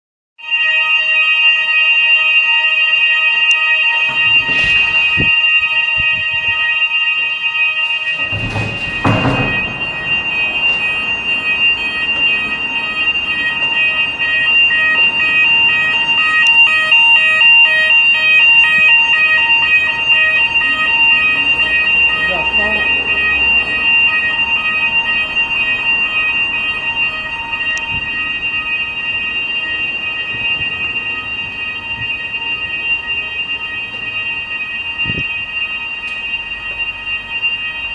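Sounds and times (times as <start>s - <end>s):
fire alarm steady tone: 0.4s - 37.9s
low thuds: 8.1s - 11.4s.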